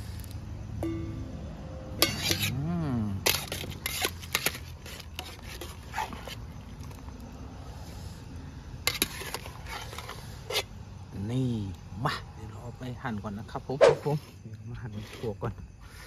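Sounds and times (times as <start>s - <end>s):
metal ladle clinking against pot: 2.0s - 2.6s.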